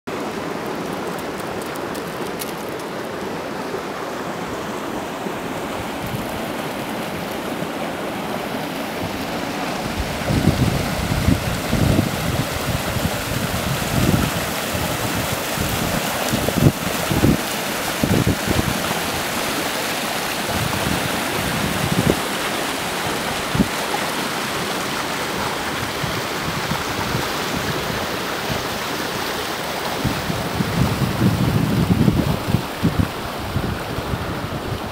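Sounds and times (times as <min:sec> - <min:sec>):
water rushing into a stream: 0:00.1 - 0:34.9
wind buffeting microphone: 0:09.0 - 0:19.3, 0:30.0 - 0:34.9.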